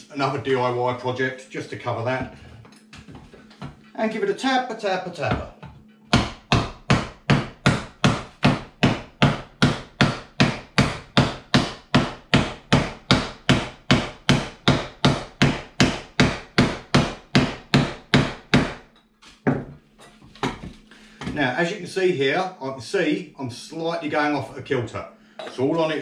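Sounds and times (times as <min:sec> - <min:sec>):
hammer striking wood: 0:06.1 - 0:18.9.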